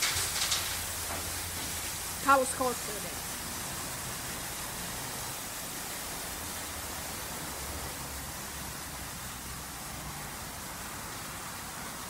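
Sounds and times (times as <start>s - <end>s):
car wash spraying water: 0.0s - 12.0s.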